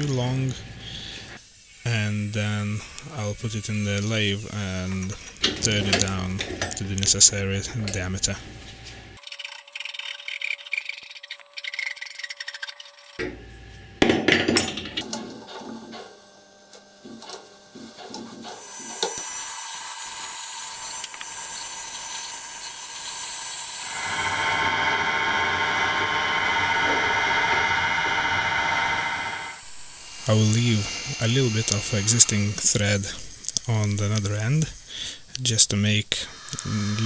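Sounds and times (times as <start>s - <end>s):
metal lathe running: 18.4s - 34.0s
high whine: 23.8s - 34.8s.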